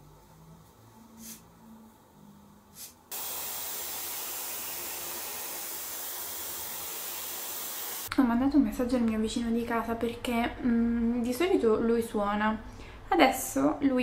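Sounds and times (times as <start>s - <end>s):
hair dryer running: 3.1s - 8.1s.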